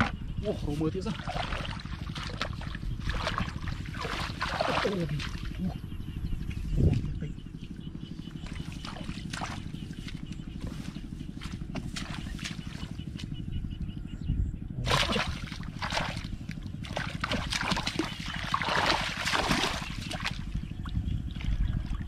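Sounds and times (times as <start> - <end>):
steady low rumble: 0.0 - 22.0
hands splashing in muddy water: 1.1 - 5.6, 8.4 - 13.0, 14.8 - 20.5.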